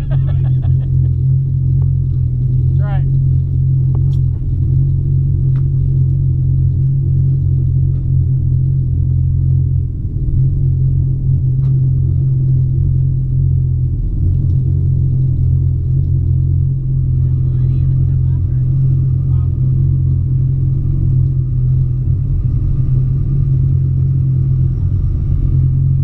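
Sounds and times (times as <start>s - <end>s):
pickup truck engine idling: 0.0s - 26.0s.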